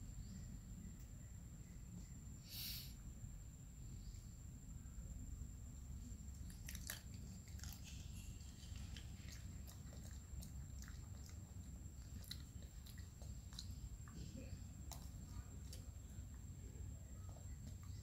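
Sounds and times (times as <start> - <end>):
monkey chewing fruit: 6.3 - 18.0.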